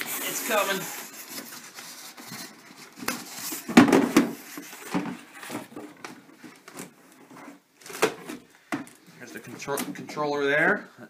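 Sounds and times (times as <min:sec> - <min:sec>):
styrofoam and cardboard rubbing: 0:00.0 - 0:07.7.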